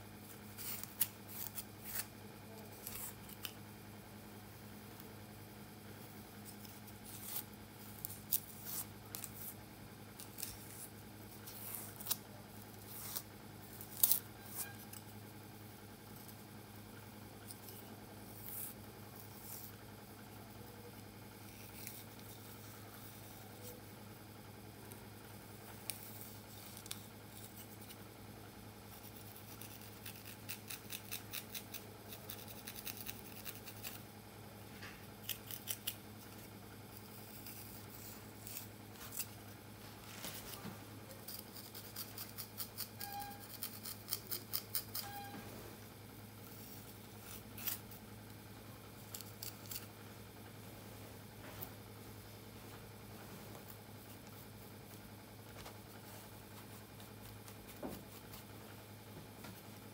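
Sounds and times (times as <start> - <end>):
steady low hum: 0.0 - 59.9
comb scratching through hair: 6.5 - 9.6, 28.9 - 34.0, 35.2 - 45.2, 46.5 - 48.0, 49.0 - 49.9.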